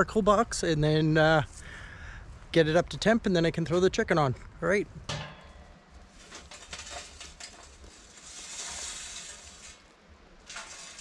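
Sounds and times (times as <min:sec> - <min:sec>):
hot charcoal clinking and clattering: 0:05.1 - 0:11.0
coals sliding out: 0:05.9 - 0:11.0.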